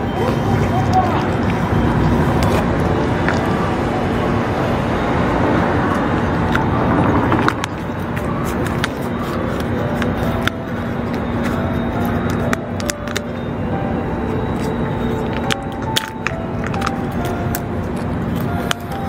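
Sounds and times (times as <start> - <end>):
faint engine hum: 0.0 - 19.0
road traffic noise: 0.0 - 19.0
cat chewing from metal dish: 5.8 - 19.0.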